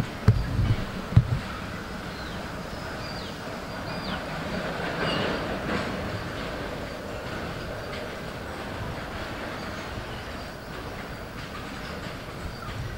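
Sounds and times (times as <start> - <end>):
heavy low thumps: 0.0 - 1.5
freight train rumbling past: 0.0 - 12.9.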